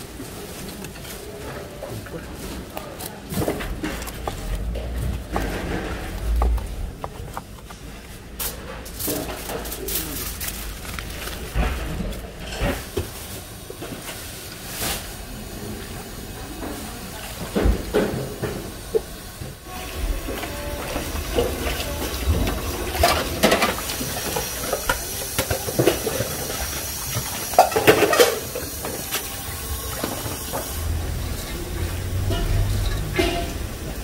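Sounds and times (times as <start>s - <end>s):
knocks and clatter: 3.3s - 13.2s
water hissing and splashing: 8.4s - 34.0s.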